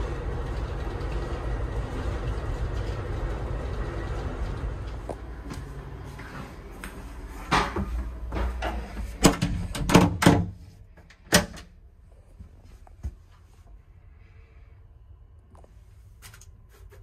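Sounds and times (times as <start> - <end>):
train running rumble: 0.0 - 10.0.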